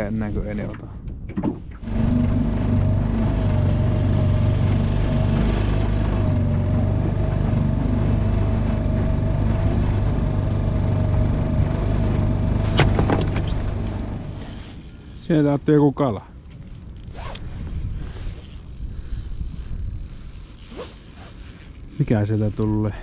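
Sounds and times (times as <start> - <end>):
outboard motor running: 1.6 - 23.0
knocks on boat: 12.6 - 13.7.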